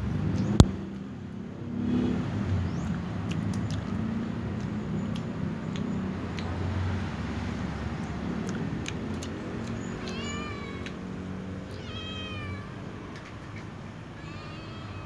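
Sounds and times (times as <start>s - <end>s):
cat meowing: 9.9s - 15.0s.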